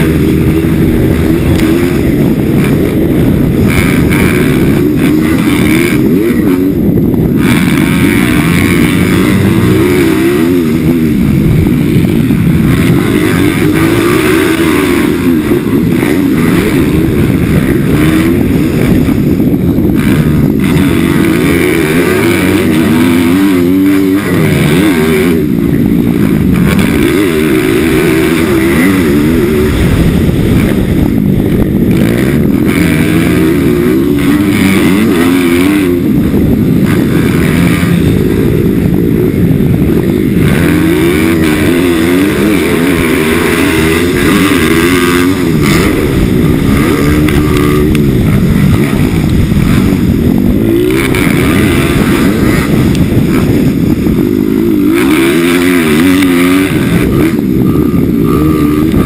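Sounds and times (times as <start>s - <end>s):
motorbike engine revving: 0.0s - 59.0s.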